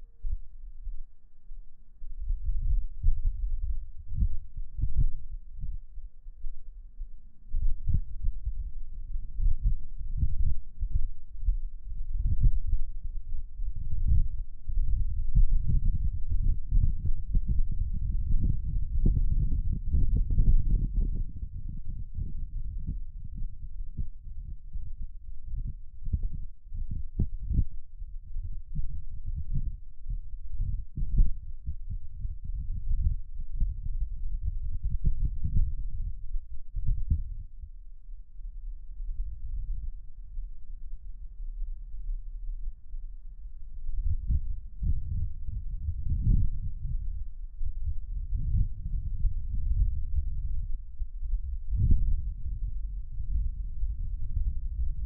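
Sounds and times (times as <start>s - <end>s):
wind buffeting microphone: 7.5s - 37.6s, 43.7s - 55.0s.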